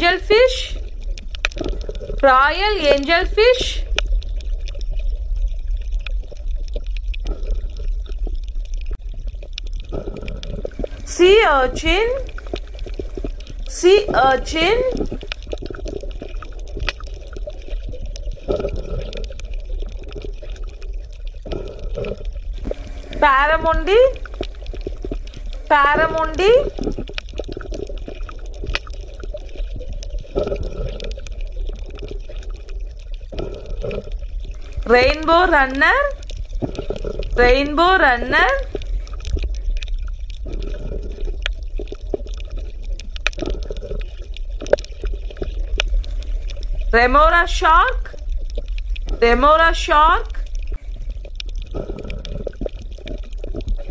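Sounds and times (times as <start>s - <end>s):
low underwater rumble: 0.0s - 53.9s
water bubbling and gurgling: 0.0s - 53.9s
low hum: 10.2s - 18.4s, 22.5s - 27.4s, 33.6s - 41.3s.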